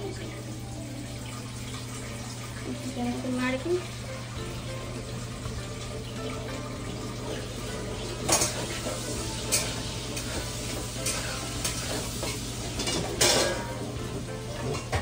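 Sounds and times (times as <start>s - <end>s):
food sizzling in a pan: 0.0s - 15.0s
spatula clinking and scraping pan: 8.2s - 13.9s.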